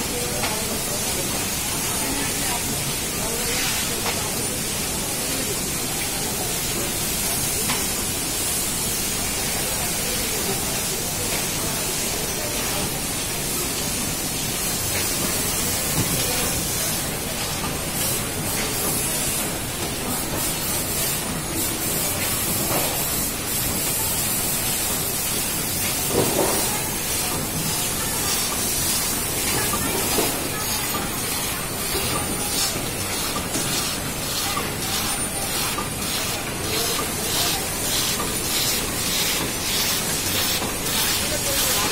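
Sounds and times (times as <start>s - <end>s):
packing machine running with hiss: 0.0s - 41.9s.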